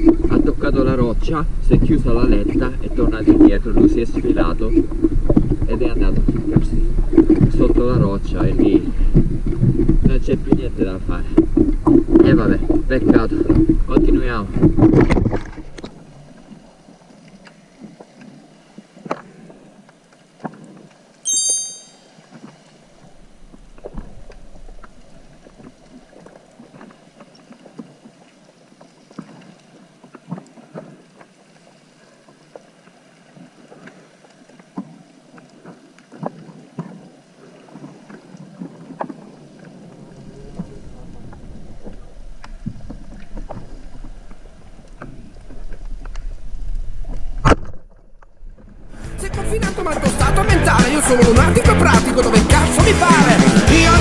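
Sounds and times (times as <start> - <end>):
underwater clicks and crackles: 0.0 - 21.2, 22.2 - 49.0
underwater water noise: 0.0 - 54.0
short high-pitched chirp: 21.3 - 22.1.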